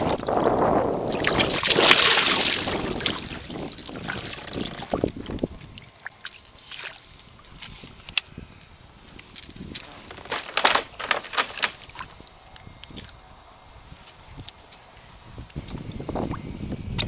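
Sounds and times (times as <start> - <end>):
water splashing and dripping: 1.1 - 7.0.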